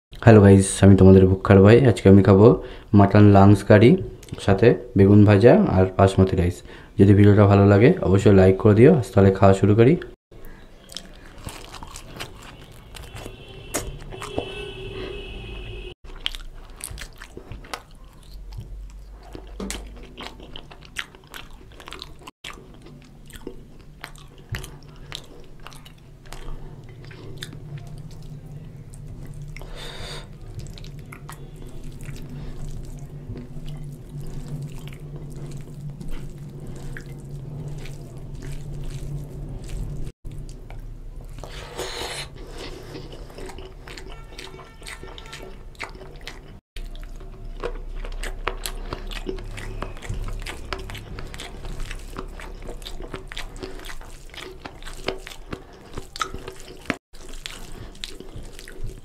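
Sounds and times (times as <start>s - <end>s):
chewing with wet mouth smacks: 10.4s - 14.5s, 16.0s - 59.0s
fingers squishing rice and curry: 10.4s - 14.6s, 16.0s - 59.0s.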